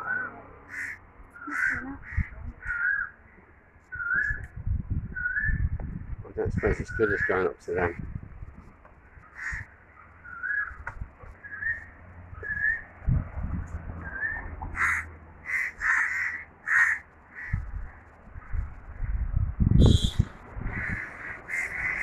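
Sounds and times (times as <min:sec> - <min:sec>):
crows cawing: 0:00.7 - 0:03.2, 0:06.6 - 0:08.0, 0:09.0 - 0:10.7, 0:14.7 - 0:18.1, 0:20.6 - 0:22.0
wind rumble on microphone: 0:01.3 - 0:02.8, 0:03.9 - 0:09.8, 0:10.6 - 0:14.8, 0:17.1 - 0:22.0
whistled notes: 0:11.4 - 0:12.8, 0:19.8 - 0:20.3.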